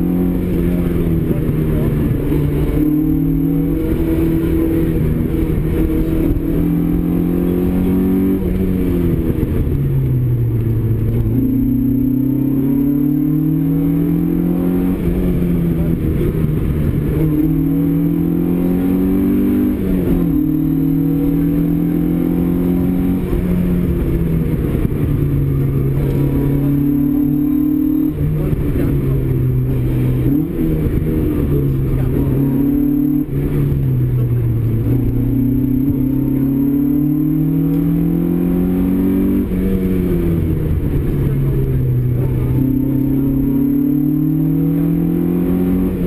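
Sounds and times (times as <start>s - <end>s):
car engine revving from inside: 0.0s - 46.0s.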